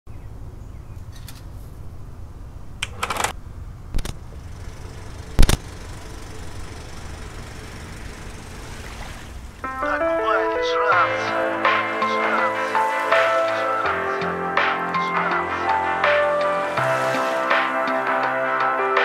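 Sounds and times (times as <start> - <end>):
steady low hum: 0.1 - 9.7.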